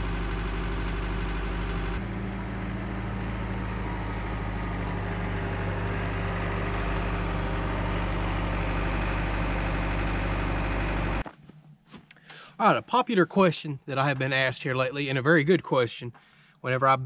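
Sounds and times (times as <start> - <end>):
tractor diesel engine running: 0.0 - 11.8.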